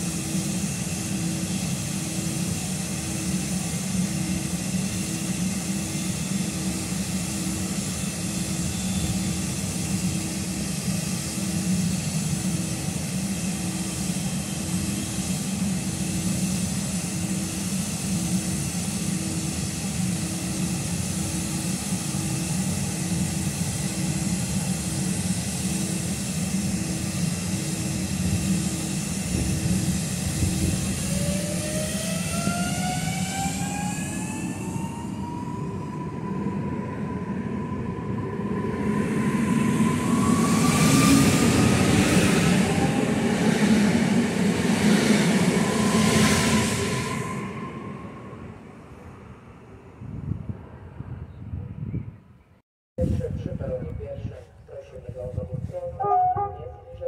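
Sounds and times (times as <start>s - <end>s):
traction motors rising whine: 0.0s - 50.0s
train equipment hum: 0.0s - 57.0s
pulsing tone: 56.0s - 57.0s.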